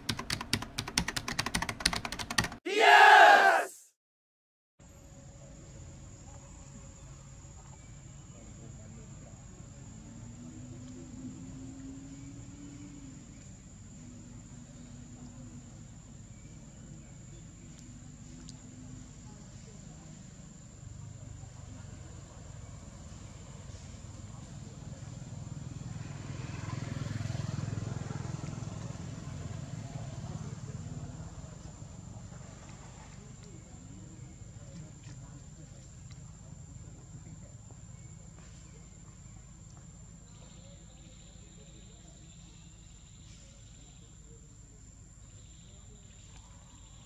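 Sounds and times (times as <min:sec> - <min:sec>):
insects high whine: 0:04.9 - 0:24.1.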